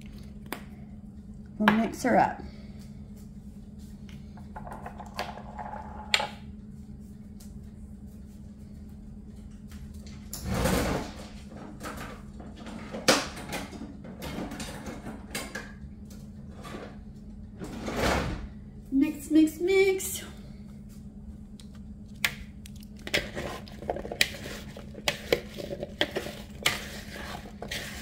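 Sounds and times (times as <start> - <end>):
steady low hum: 0.0 - 28.0
rustling and scraping: 23.0 - 28.0.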